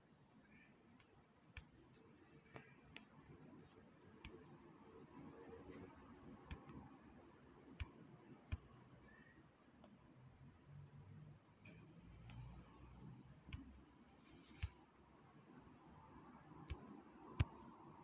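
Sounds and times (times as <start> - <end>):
faint sharp clicks: 11.6 - 12.7.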